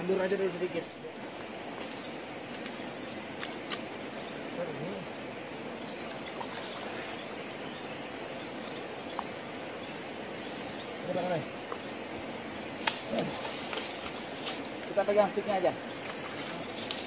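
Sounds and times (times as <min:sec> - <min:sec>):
insects chirping: 0:00.0 - 0:17.0.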